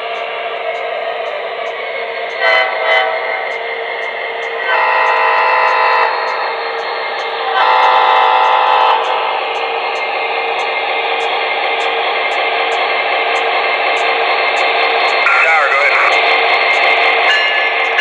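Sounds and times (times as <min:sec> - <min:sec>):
model locomotive diesel idle: 0:00.0 - 0:18.0
locomotive horn blasts: 0:04.7 - 0:06.1, 0:07.6 - 0:09.0.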